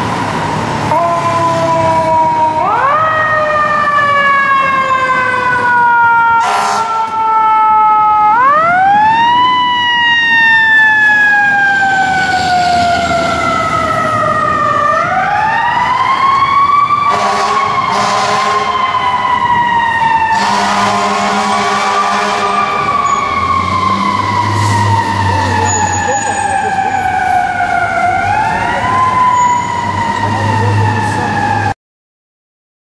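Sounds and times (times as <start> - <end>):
fire truck siren wailing: 0.0 - 31.8
air horn blasts: 6.4 - 7.1, 17.1 - 18.7, 20.3 - 22.8.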